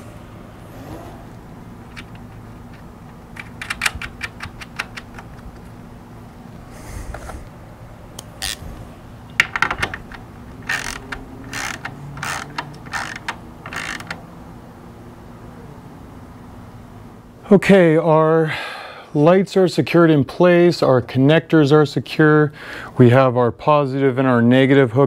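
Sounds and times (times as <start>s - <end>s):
hand ratchet clicking: 9.5s - 14.2s.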